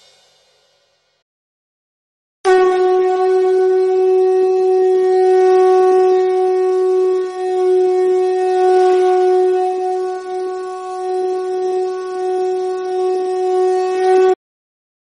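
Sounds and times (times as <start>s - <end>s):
wind instrument long note: 2.5s - 14.4s.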